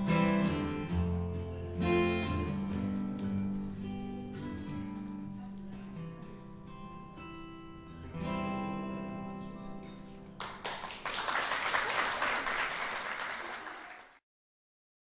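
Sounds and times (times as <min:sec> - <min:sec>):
acoustic guitar chord ringing: 0:00.0 - 0:10.4
applause: 0:10.4 - 0:14.2.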